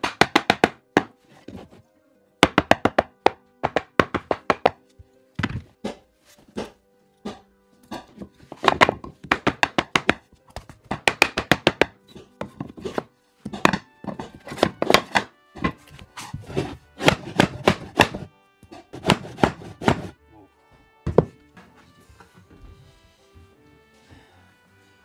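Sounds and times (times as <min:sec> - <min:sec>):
hammering on wooden floorboards: 0:00.0 - 0:01.8, 0:02.4 - 0:15.8, 0:16.4 - 0:20.2, 0:21.0 - 0:21.4
background music: 0:00.0 - 0:25.0.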